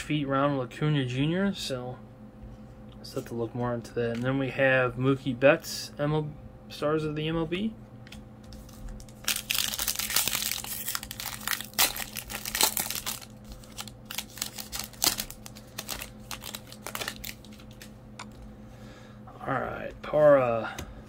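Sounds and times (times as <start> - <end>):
foil wrapper crinkling: 8.5 - 18.0.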